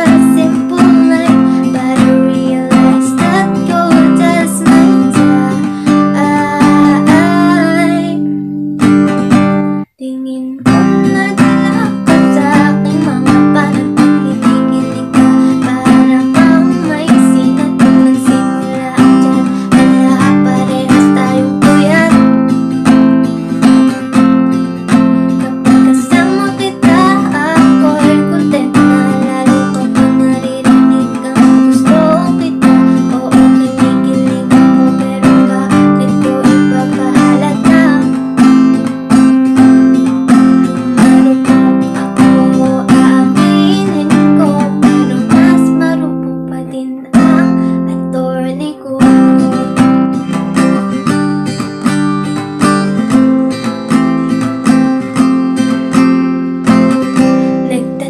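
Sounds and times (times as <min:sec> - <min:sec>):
acoustic guitar strumming chords: 0:00.0 - 0:58.0.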